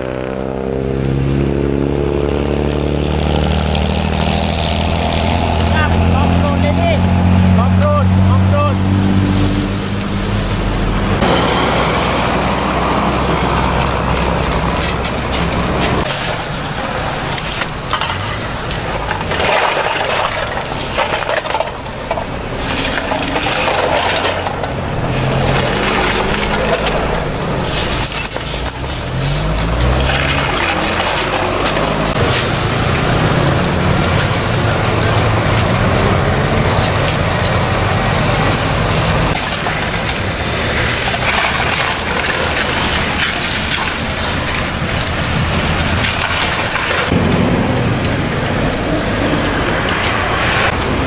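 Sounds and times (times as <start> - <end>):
road traffic passing: 0.0 - 51.0
cans clinking on asphalt: 17.2 - 38.6
broom sweeping: 27.5 - 30.1.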